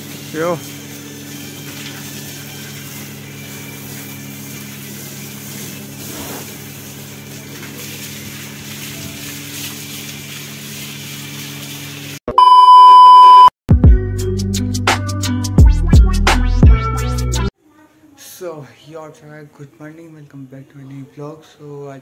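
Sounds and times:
hose water spraying onto car: 0:00.0 - 0:12.2
test-tone beep: 0:12.3 - 0:13.5.

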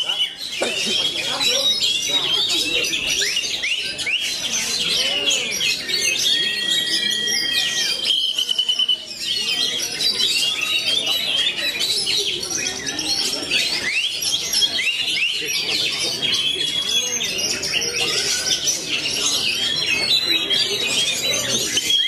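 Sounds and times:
songbirds chirping and trilling: 0:00.0 - 0:22.0.

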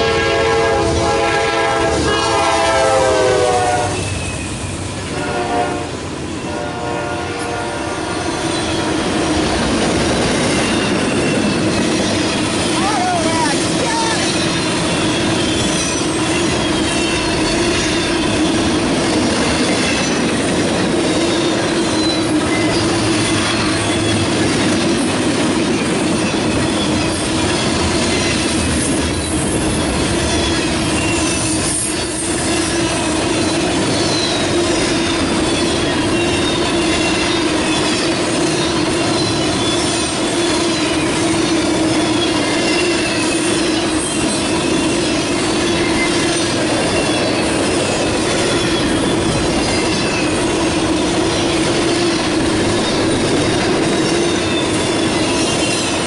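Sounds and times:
freight train wheels rumbling on rail: 0:00.0 - 0:56.0
high wheel squeals: 0:10.3 - 0:24.7, 0:26.1 - 0:56.0.

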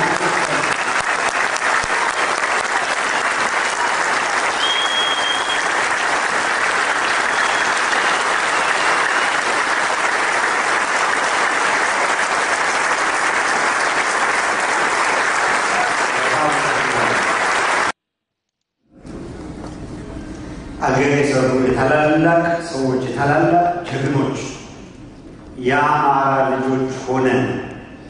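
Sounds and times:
crowd applauding: 0:00.0 - 0:18.0.

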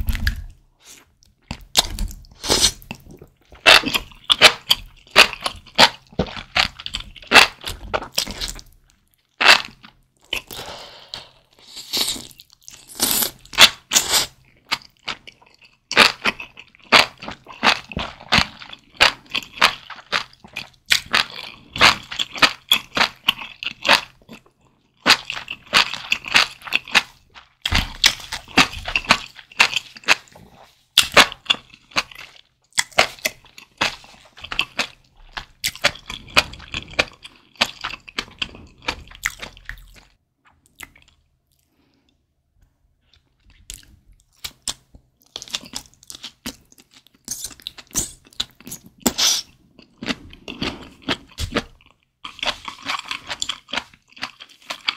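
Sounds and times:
wet chewing and biting: 0:12.1 - 0:41.7.

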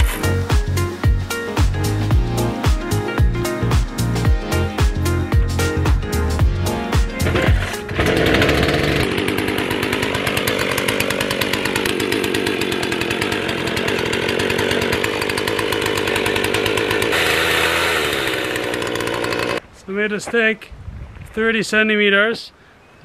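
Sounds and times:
chainsaw cutting through log: 0:00.0 - 0:01.1, 0:07.2 - 0:19.6.

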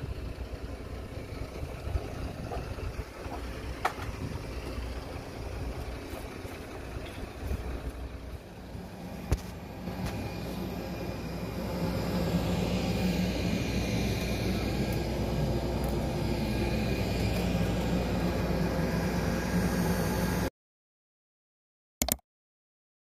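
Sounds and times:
mechanical drone with hiss: 0:08.5 - 0:20.5.

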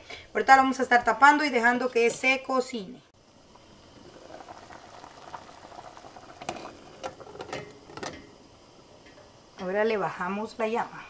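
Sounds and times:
water boiling in covered pot: 0:03.2 - 0:10.9.

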